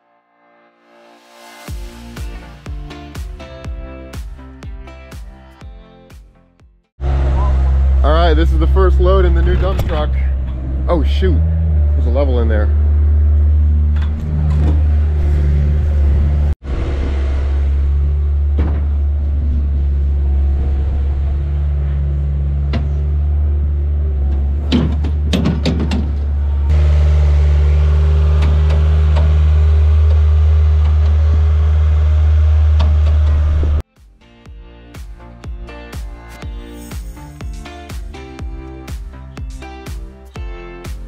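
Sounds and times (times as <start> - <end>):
heavy machinery engine running: 7.0 - 33.8
clunks and knocks: 13.9 - 15.1, 18.4 - 19.6, 22.5 - 23.2, 24.2 - 26.6.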